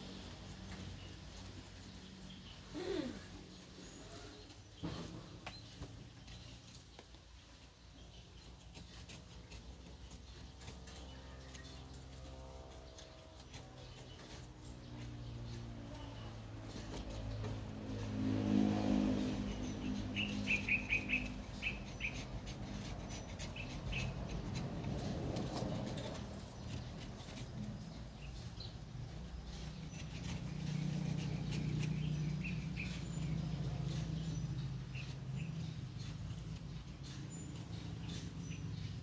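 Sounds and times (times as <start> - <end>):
knife scraping coconut husk: 8.0 - 38.6
low steady hum: 9.5 - 32.3
birds chirping: 19.0 - 39.0.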